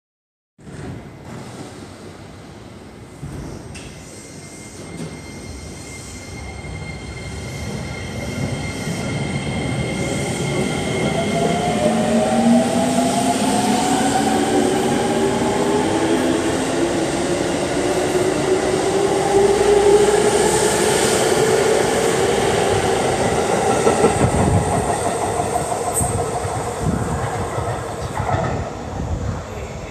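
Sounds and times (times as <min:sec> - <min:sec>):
train wheels rumbling on rails: 0:00.6 - 0:29.9.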